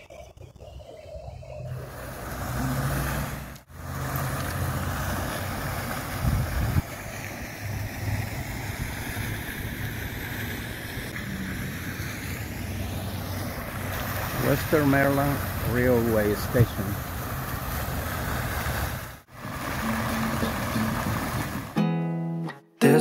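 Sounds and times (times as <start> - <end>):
wind rumble on microphone: 5.8 - 13.3.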